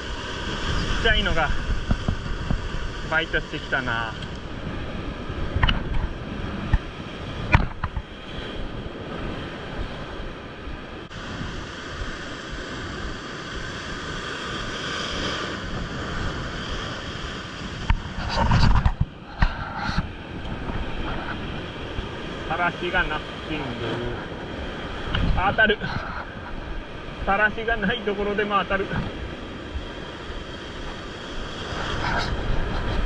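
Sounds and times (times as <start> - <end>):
surf breaking over rocks: 0.0 - 4.2
wind buffeting microphone: 0.0 - 28.1, 28.8 - 33.0.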